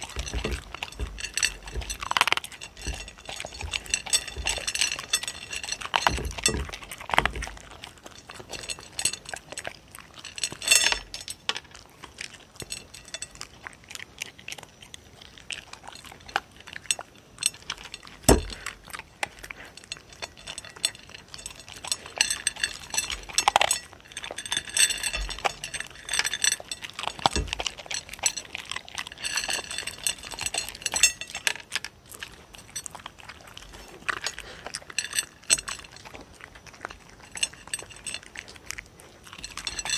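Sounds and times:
dogs crunching dry kibble: 0.0s - 39.9s
kibble clinking against plate: 0.0s - 39.9s.

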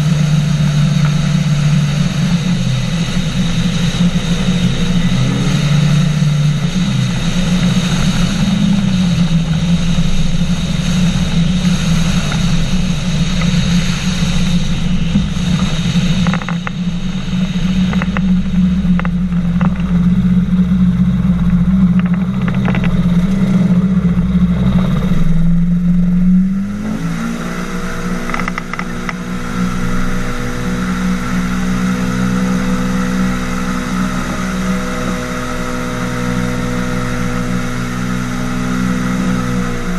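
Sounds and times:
engine and propeller running: 0.0s - 39.9s.

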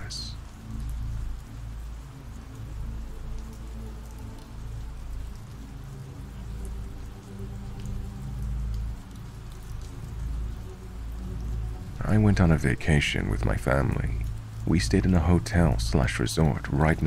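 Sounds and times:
rain hiss: 0.0s - 17.0s
deep steady rumble: 9.8s - 17.0s.

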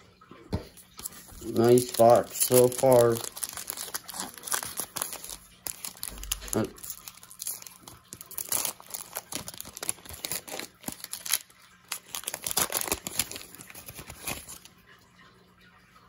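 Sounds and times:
foil wrapper crinkling and tearing: 0.9s - 14.7s.

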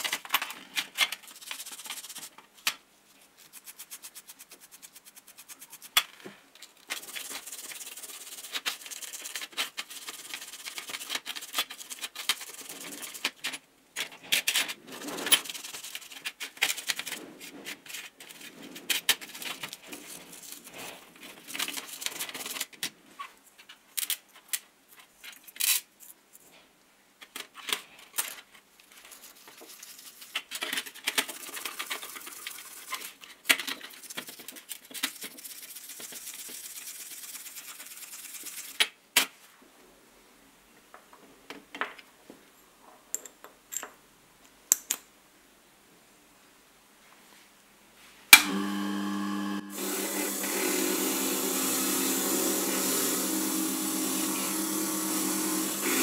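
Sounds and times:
brush scrubbing metal parts: 0.9s - 2.4s, 3.2s - 6.1s, 6.7s - 13.6s, 14.3s - 22.7s, 28.9s - 38.8s, 49.8s - 56.0s.

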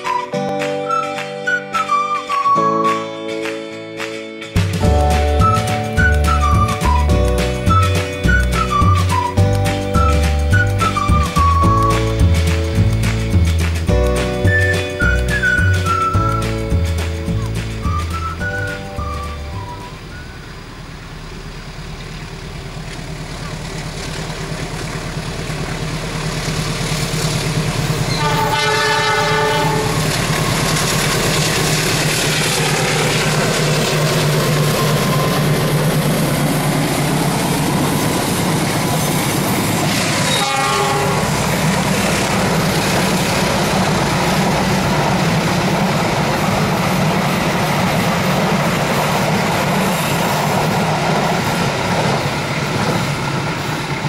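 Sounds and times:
locomotive engine running: 0.0s - 54.0s
train wheels rolling on rails: 4.6s - 54.0s
train horn: 28.1s - 30.6s, 40.2s - 41.6s.

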